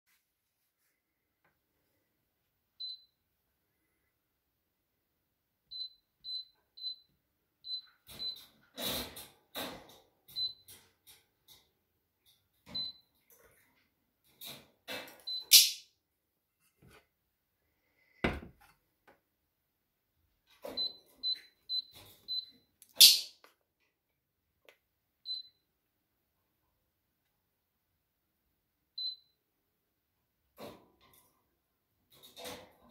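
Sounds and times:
hob control beeps: 20.8s - 22.6s.

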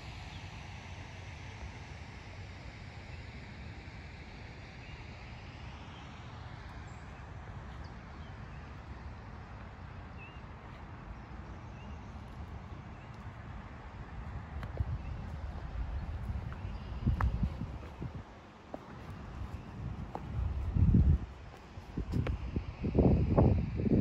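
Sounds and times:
wind on microphone: 12.3s - 24.0s.

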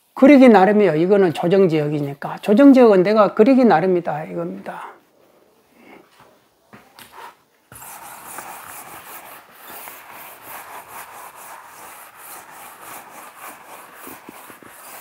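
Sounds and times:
eraser rubbing on chalkboard: 7.1s - 15.0s.

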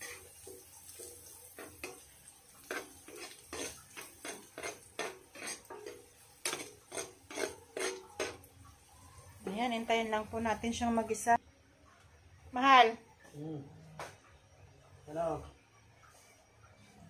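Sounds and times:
metal spoon scraping frying pan: 0.0s - 0.4s, 1.5s - 8.5s.

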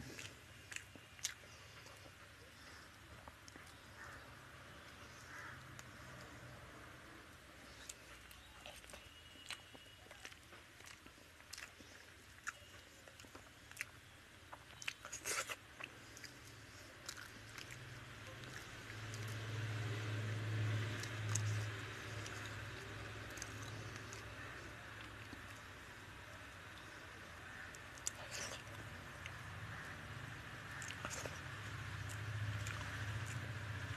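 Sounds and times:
chewing: 0.0s - 6.4s, 7.6s - 25.9s, 26.7s - 30.0s, 30.7s - 33.9s
wet eating clicks and smacks: 7.8s - 25.8s, 30.7s - 33.5s.

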